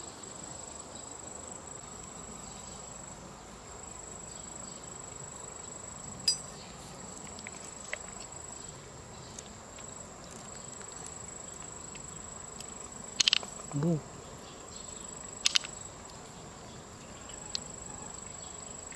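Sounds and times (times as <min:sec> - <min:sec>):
faint ticks: 0:09.3 - 0:14.0, 0:15.3 - 0:16.3, 0:17.3 - 0:18.9
high-pitched insect drone: 0:11.1 - 0:14.1, 0:14.7 - 0:16.0
sharp click: 0:13.2 - 0:13.5, 0:15.4 - 0:15.7.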